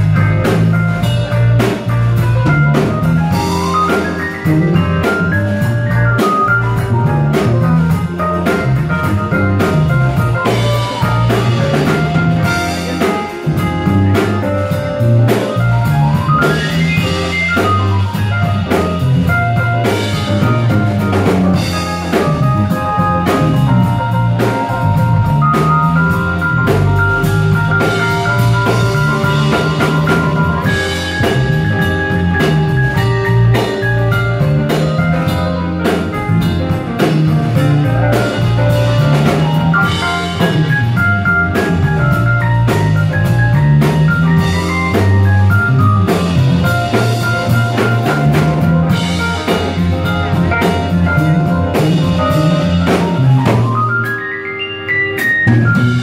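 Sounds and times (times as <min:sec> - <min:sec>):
drum kit: 0:00.0 - 0:56.0
electric bass line: 0:00.0 - 0:56.0
held melody notes: 0:00.0 - 0:56.0.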